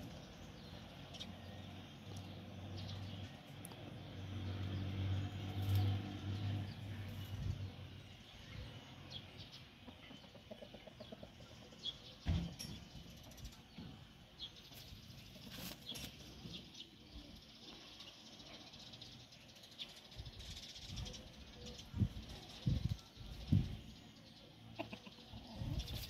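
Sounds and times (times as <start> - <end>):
chickens pecking and scratching: 5.4 - 7.6, 14.6 - 16.7, 24.8 - 26.0
chickens clucking: 8.6 - 14.2, 21.6 - 26.0.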